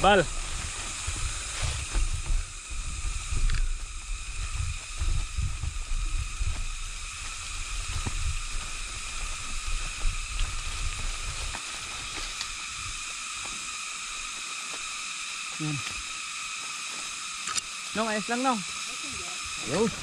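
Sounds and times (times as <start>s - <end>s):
steady high-pitched hum: 0.0s - 20.0s
wind buffeting microphone: 0.3s - 11.6s.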